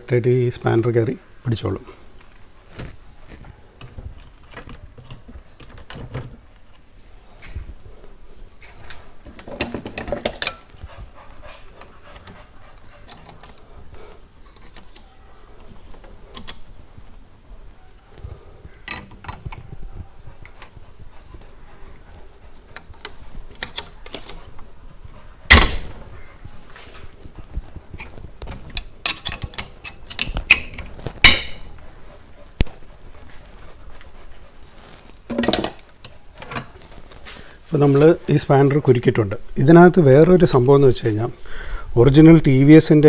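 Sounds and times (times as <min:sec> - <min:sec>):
spanner clinking on metal: 0:09.4 - 0:10.8, 0:18.9 - 0:19.5, 0:28.8 - 0:31.7.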